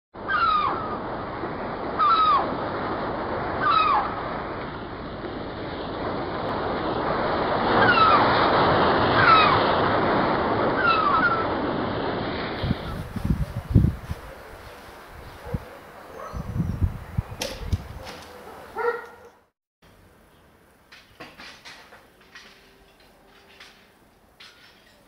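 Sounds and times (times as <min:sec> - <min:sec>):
seabird crying: 0:00.2 - 0:01.1, 0:02.0 - 0:02.6, 0:03.6 - 0:04.1, 0:07.8 - 0:08.2, 0:09.2 - 0:09.6, 0:10.8 - 0:11.5
ocean surf washing: 0:00.4 - 0:16.3.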